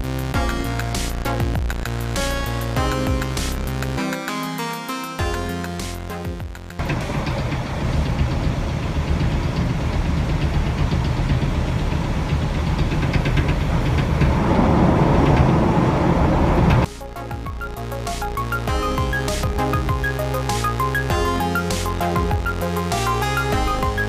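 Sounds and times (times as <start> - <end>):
music: 0.0 - 8.3, 16.8 - 24.0
train wheels rumbling on rail: 6.8 - 16.9.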